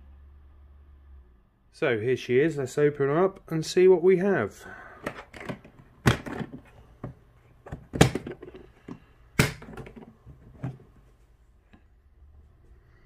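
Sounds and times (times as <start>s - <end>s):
box opening clicks and knocks: 5.0s - 10.9s
handling noise: 5.0s - 11.4s.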